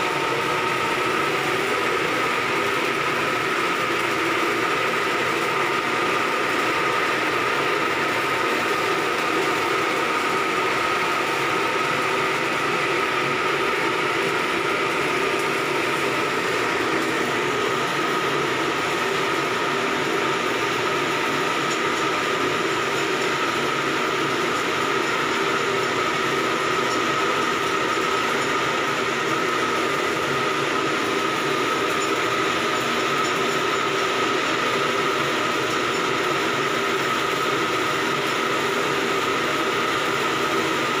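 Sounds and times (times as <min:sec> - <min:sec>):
machinery humming loudly: 0:00.0 - 0:41.0.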